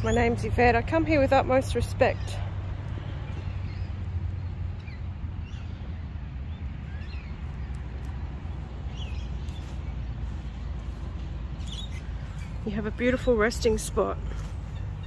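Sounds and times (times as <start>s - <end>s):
steady low rumble: 0.0s - 15.0s
bird chirps: 11.6s - 13.7s.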